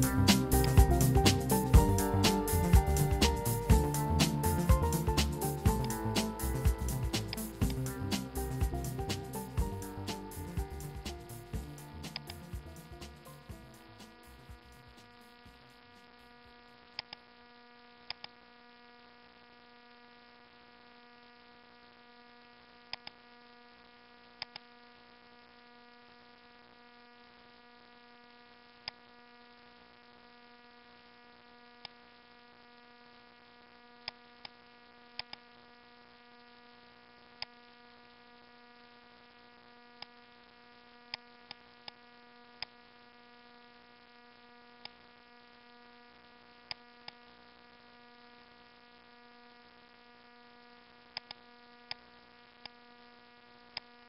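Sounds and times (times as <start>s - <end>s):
electrical hum: 0.0s - 17.6s
computer mouse clicks: 22.9s - 23.2s, 51.2s - 51.4s.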